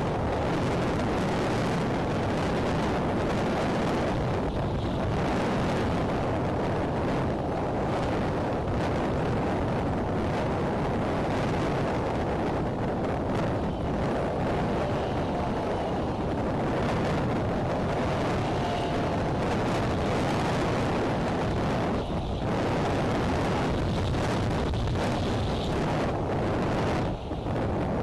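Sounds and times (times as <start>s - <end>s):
gusty wind buffeting microphone: 0.0s - 28.0s.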